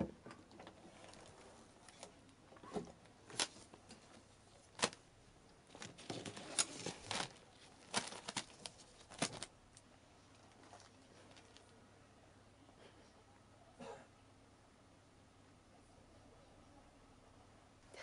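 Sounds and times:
plastic bags crinkling: 0.6 - 2.2, 3.2 - 5.0, 5.6 - 11.7.

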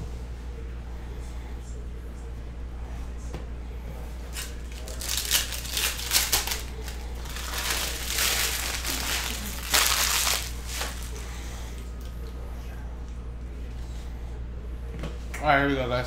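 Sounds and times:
card pack wrappers crinkling: 4.3 - 11.2.

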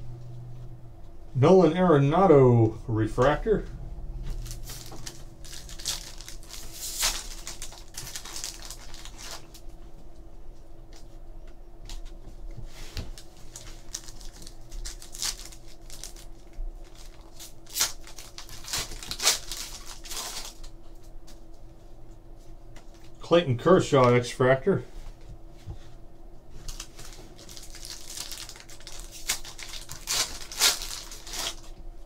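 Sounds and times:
foil pack crinkling and tearing: 4.3 - 9.7, 13.0 - 20.8, 26.6 - 31.8.

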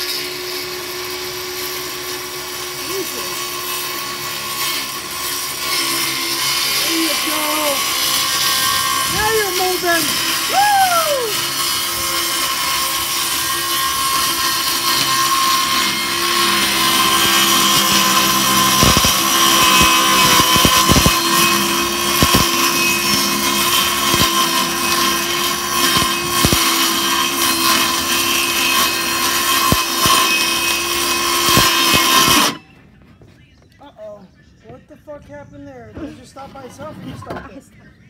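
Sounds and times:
circular saw motor whine: 13.3 - 32.6.

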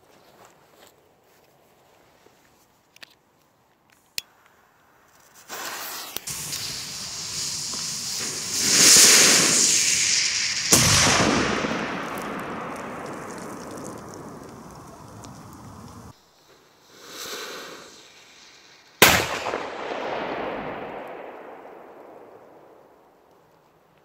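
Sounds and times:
firecracker fuse hissing: 5.1 - 19.5
firecracker bang: 5.5 - 16.1, 19.0 - 22.6.

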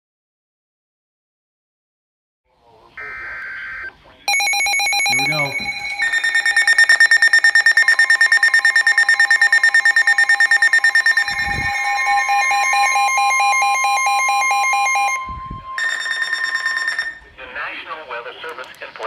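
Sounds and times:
rapid electronic beeping: 3.0 - 17.3
steady warning tone: 3.0 - 17.4.

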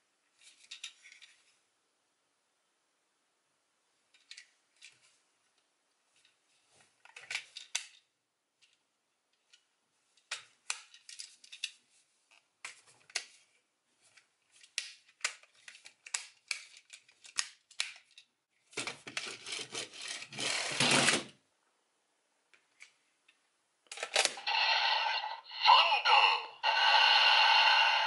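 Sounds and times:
plastic toy parts clicking: 14.6 - 18.3.

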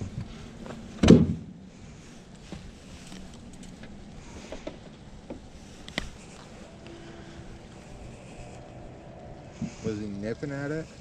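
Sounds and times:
low background noise: 0.0 - 11.0
handling clicks and rustles: 2.1 - 10.0.

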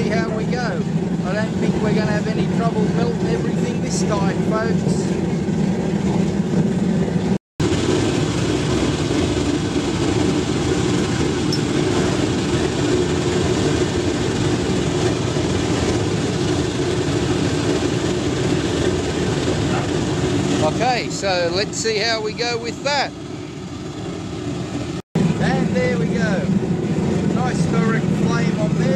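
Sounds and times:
oil burner flame rushing: 0.0 - 28.9.

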